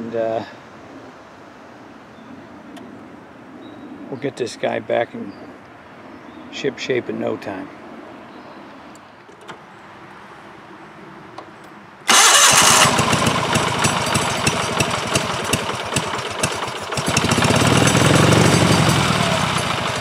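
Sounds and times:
garden tractor engine running: 0:12.1 - 0:20.0.

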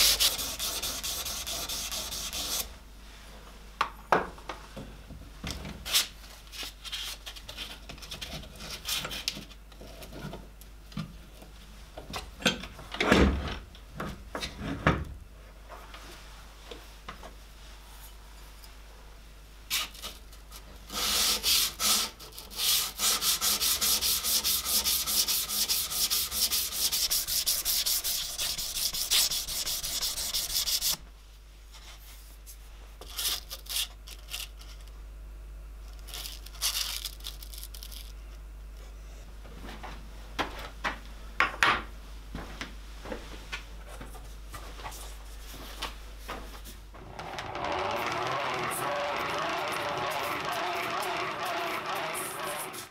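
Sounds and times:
blade rasping on sandpaper: 0:00.0 - 0:02.7, 0:20.9 - 0:31.0.

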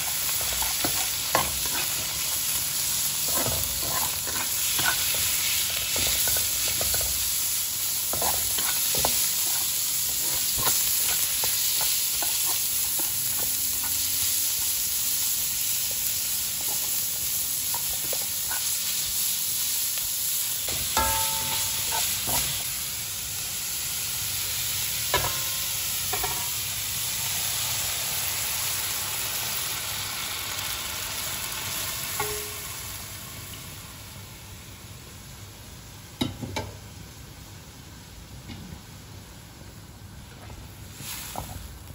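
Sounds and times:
spatula scraping a wok: 0:00.0 - 0:19.7, 0:20.6 - 0:22.8
meat sizzling in a wok: 0:00.0 - 0:41.9
spatula knocking on wok: 0:21.0 - 0:22.0.

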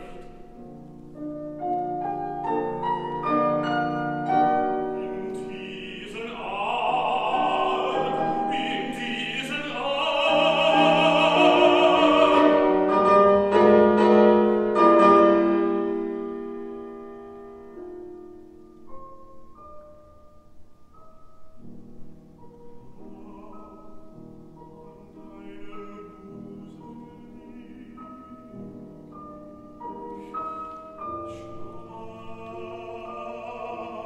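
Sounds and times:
man singing with vibrato: 0:00.0 - 0:00.6, 0:04.5 - 0:13.3, 0:22.8 - 0:28.9, 0:30.2 - 0:34.0
grand piano accompaniment: 0:00.0 - 0:34.0.

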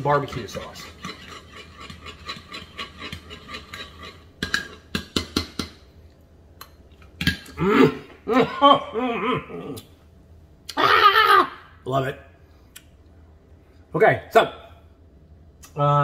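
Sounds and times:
metal spoon scraping ceramic bowl: 0:00.0 - 0:04.9.

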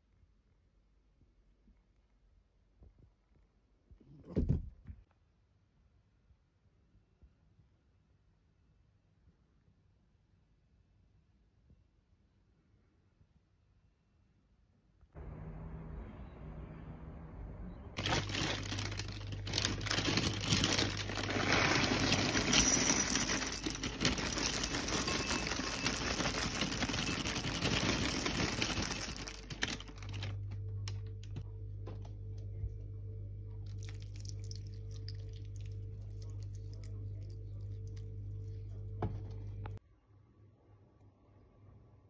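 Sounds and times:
liquid pouring from a carton: 0:18.0 - 0:30.2, 0:33.7 - 0:37.0
cereal pouring into a bowl: 0:18.0 - 0:30.3, 0:33.7 - 0:38.0
steady low hum: 0:27.4 - 0:39.8.

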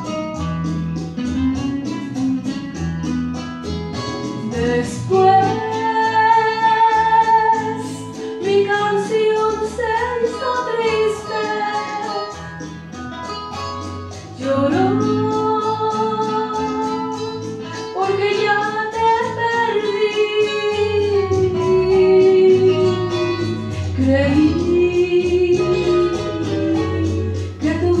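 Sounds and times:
strummed guitar: 0:00.0 - 0:07.6.

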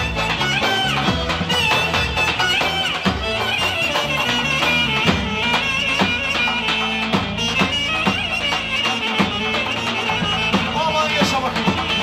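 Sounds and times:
high lead melody: 0:00.0 - 0:12.0
steady drum beat: 0:00.0 - 0:12.0.

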